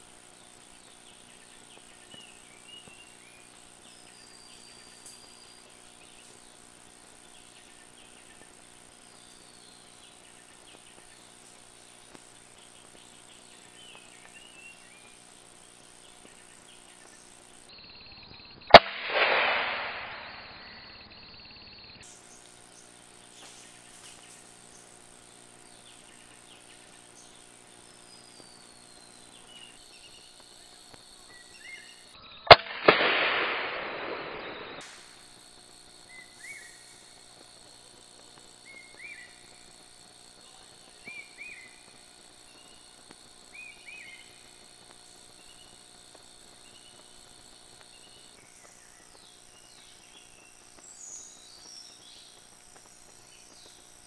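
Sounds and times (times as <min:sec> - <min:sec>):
faint bird chirps: 0:00.0 - 0:18.8, 0:19.8 - 0:32.6, 0:33.6 - 0:54.0
rifle shot echoing: 0:18.7 - 0:20.6, 0:32.5 - 0:34.8.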